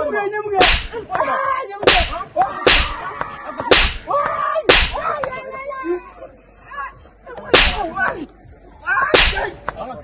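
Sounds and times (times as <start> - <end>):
sharp loud cracks: 0.6 - 1.3, 1.9 - 5.3, 7.6 - 7.9, 9.2 - 9.7.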